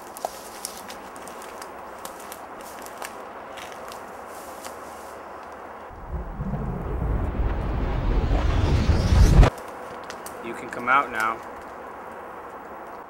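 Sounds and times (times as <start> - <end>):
footsteps on dry pine needles: 0.0 - 5.6
twigs crackling and snapping: 0.0 - 5.7, 9.5 - 13.0
loud low rumble: 5.9 - 9.5.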